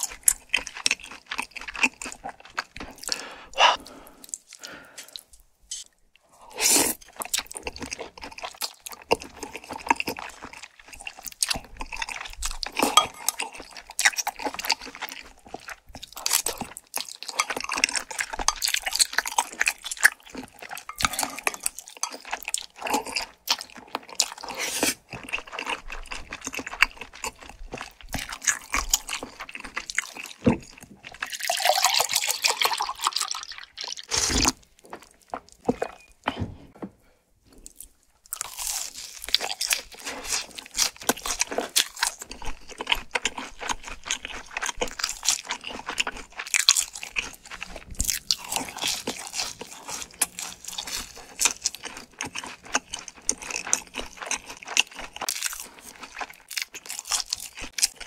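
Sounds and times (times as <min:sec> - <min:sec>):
sticky chewing: 0:00.0 - 0:05.4, 0:07.0 - 0:36.1, 0:37.6 - 0:58.0
slurping noodles: 0:02.6 - 0:07.2, 0:24.4 - 0:25.1, 0:31.2 - 0:34.6.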